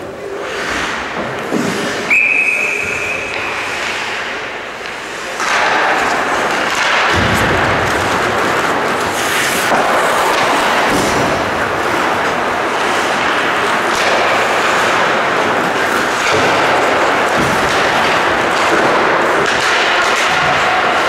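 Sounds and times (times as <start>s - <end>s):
ice rink rushing noise: 0.0s - 21.0s
referee's whistle blast: 2.1s - 3.5s.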